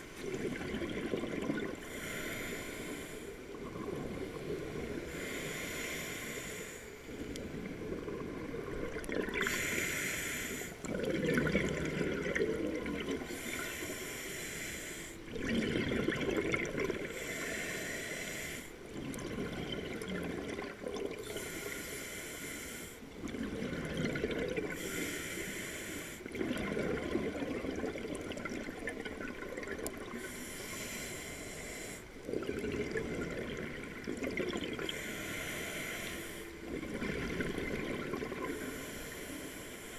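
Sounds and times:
bubbling exhale underwater: 0.2 - 1.8, 7.9 - 9.7, 10.8 - 13.3, 15.3 - 17.2, 23.2 - 24.8, 26.3 - 30.2, 32.3 - 35.0
regulator hissing inhale: 1.8 - 3.5, 5.0 - 7.5, 9.4 - 10.9, 13.2 - 15.2, 17.0 - 18.8, 21.2 - 23.1, 24.7 - 26.3, 30.1 - 32.2, 34.8 - 36.7, 38.4 - 39.9.

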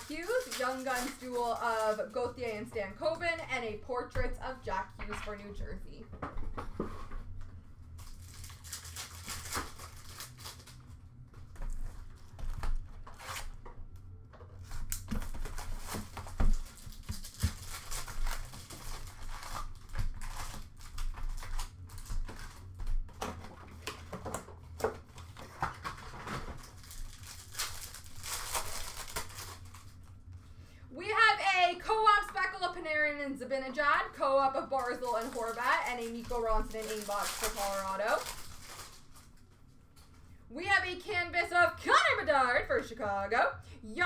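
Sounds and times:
cards being shuffled: 0.0 - 2.7, 14.5 - 30.1
wrappers tearing and crinkling: 0.0 - 3.3, 7.9 - 13.6, 14.6 - 30.3, 33.8 - 40.2
low steady hum: 0.0 - 44.0.

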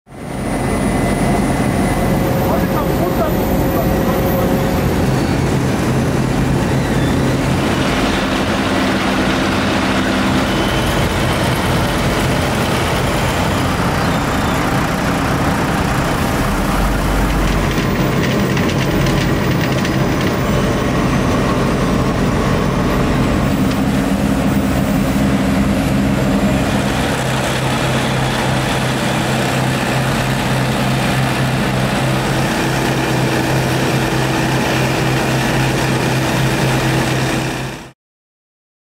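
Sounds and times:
higher machine tone: 0.1 - 37.7
diesel engine drone: 0.1 - 38.0.

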